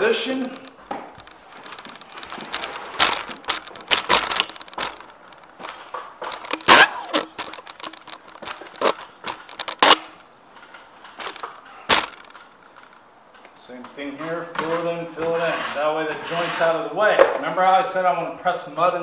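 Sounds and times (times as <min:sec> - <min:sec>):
ladder and tools knocking: 0:00.0 - 0:12.9.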